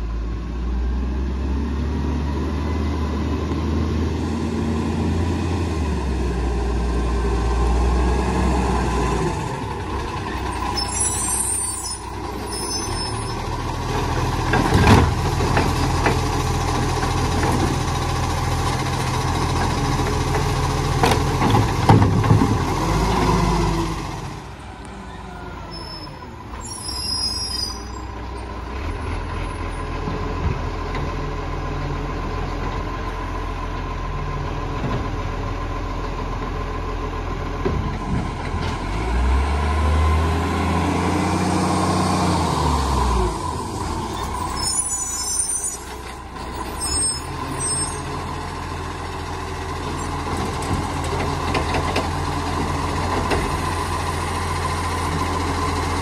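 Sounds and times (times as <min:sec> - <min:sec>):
garbage truck diesel engine: 0:00.0 - 0:56.0.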